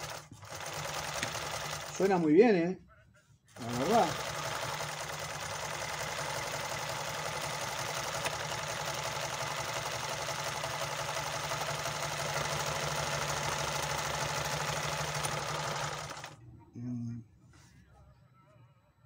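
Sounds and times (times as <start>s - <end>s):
sewing machine running: 0.0s - 2.2s, 3.5s - 16.4s.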